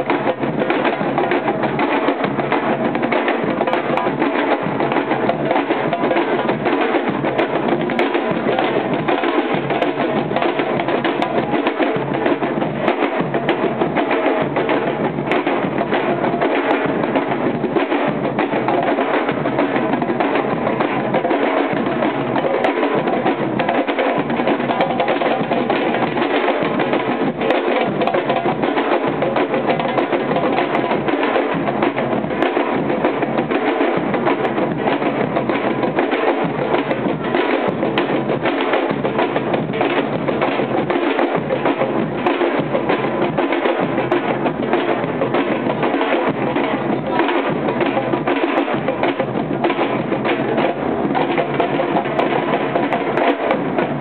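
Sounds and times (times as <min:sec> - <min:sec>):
samba drums playing: 0:00.0 - 0:54.0.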